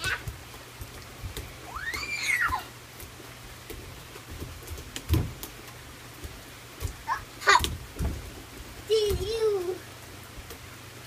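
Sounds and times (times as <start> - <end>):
rain hissing: 0.0 - 11.0
child squealing: 1.7 - 2.7.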